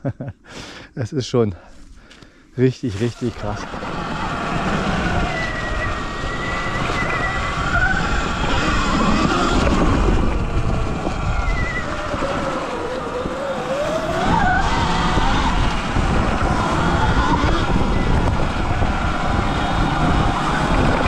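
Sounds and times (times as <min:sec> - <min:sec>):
electric motor whine: 0:02.9 - 0:21.0
wind rumble on microphone: 0:02.9 - 0:21.0.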